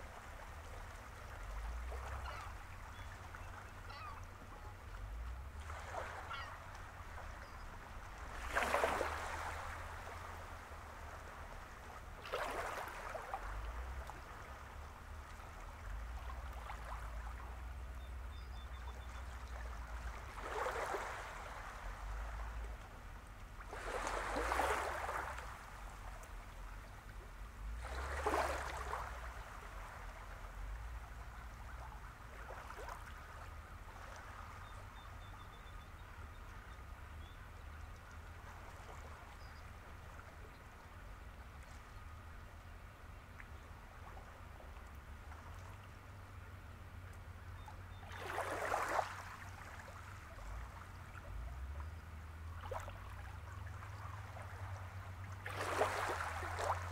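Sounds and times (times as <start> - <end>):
low steady rumble: 0.0 - 56.9
small waves washing ashore: 0.0 - 56.9.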